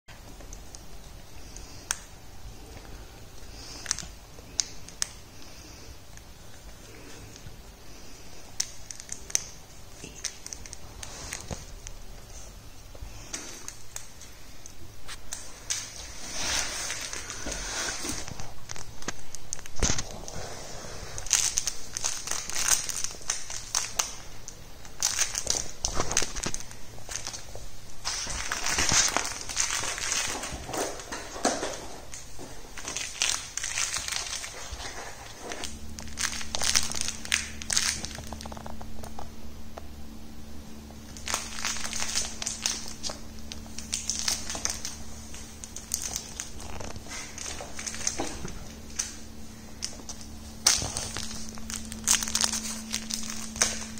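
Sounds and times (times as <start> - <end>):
steady low hum: 0.1 - 53.9
plush toy rattling and crinkling: 21.2 - 39.2, 41.1 - 53.9.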